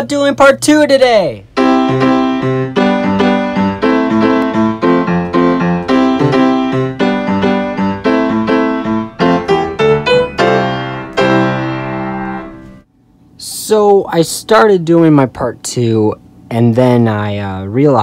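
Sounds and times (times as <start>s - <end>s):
piano music: 1.5s - 12.9s.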